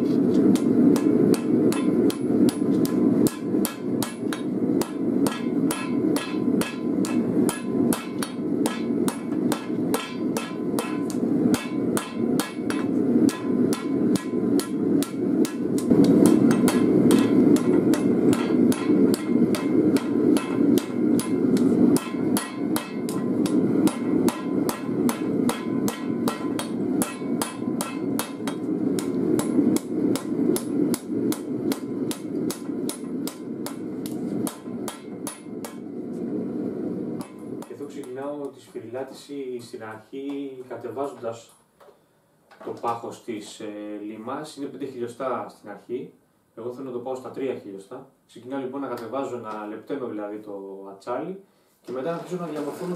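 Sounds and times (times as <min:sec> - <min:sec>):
low rushing noise: 0:00.0 - 0:38.4
hammer striking metal on anvil: 0:00.5 - 0:35.9, 0:37.2 - 0:38.2.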